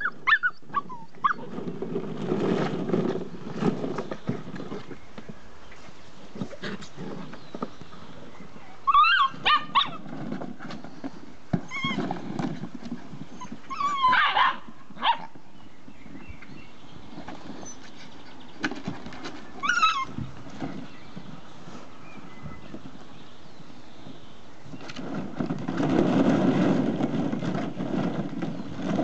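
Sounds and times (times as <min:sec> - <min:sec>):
puppies yipping and barking: 0:00.0 - 0:01.6, 0:08.8 - 0:10.1, 0:11.7 - 0:12.1, 0:13.3 - 0:15.4, 0:19.5 - 0:20.4.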